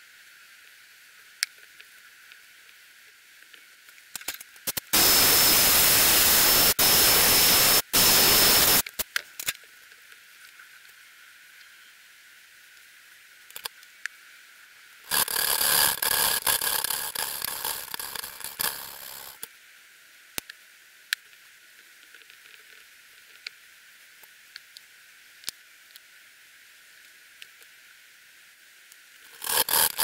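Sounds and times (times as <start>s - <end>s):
small metal parts clicking: 4.1s - 5.3s, 29.3s - 30.0s.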